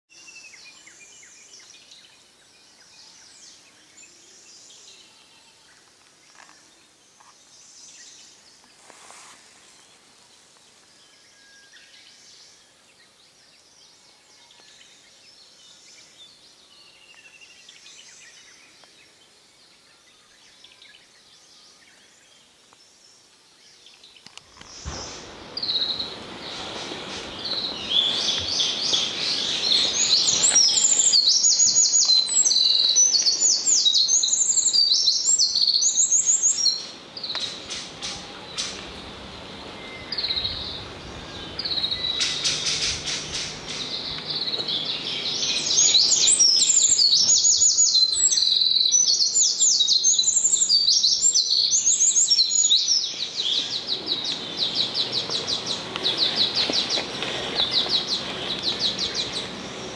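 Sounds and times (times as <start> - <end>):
faint distant bird calls: 24.2 - 59.9
wren trilling song: 24.5 - 59.9.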